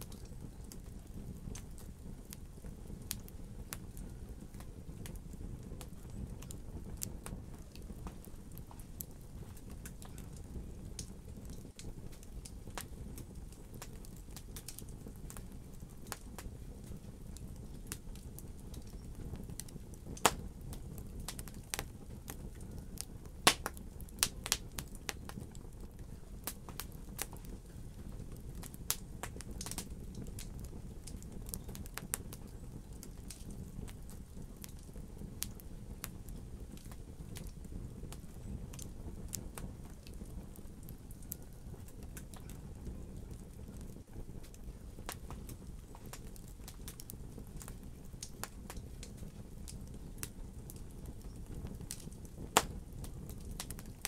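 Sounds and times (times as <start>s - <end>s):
logs crackling and popping: 0.0s - 54.0s
low rumble of flame: 0.0s - 54.0s.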